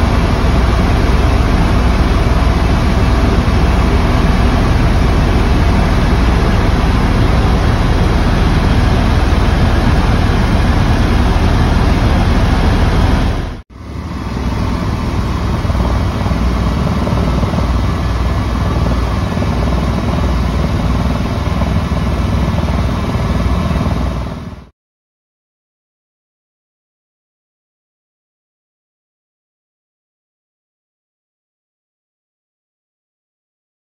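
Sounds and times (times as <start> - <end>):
helicopter engine and rotor: 0.0 - 24.7.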